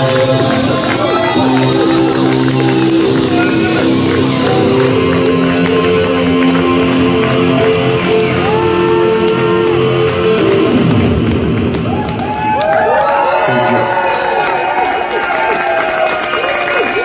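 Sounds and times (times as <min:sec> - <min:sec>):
live band holding chords: 0:00.0 - 0:12.4.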